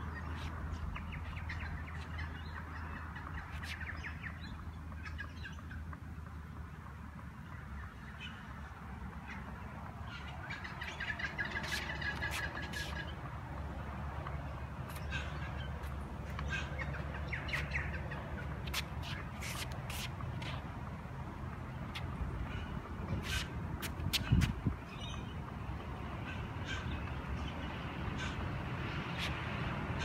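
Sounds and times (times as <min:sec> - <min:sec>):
birds chirping: 0:07.3 - 0:13.3, 0:24.2 - 0:29.2.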